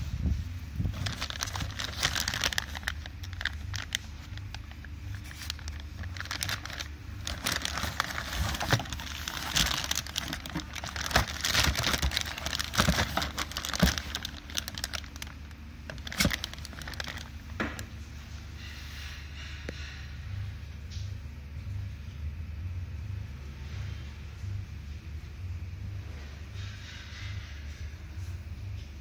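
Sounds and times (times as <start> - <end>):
plastic bags crinkling: 0.8 - 17.9.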